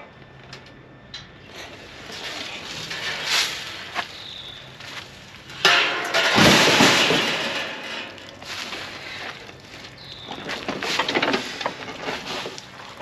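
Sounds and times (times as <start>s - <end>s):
loud metal crash rattling: 5.6s - 8.3s
metal crate frame clattering: 5.6s - 8.6s.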